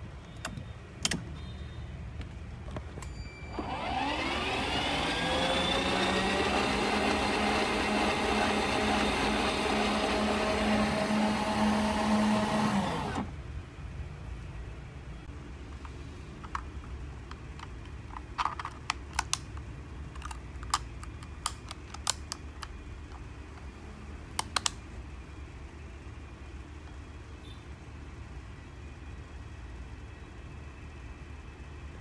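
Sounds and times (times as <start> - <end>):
electric motor whine: 3.5 - 13.3.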